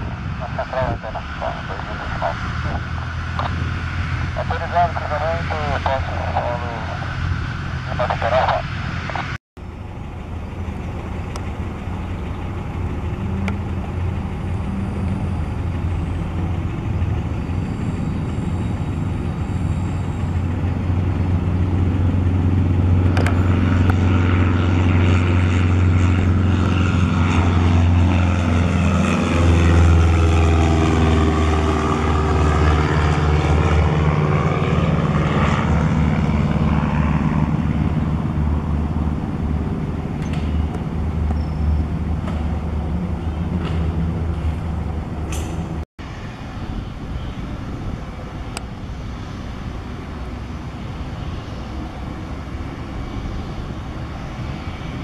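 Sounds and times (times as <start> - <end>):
propeller plane engine: 0.0 - 55.0.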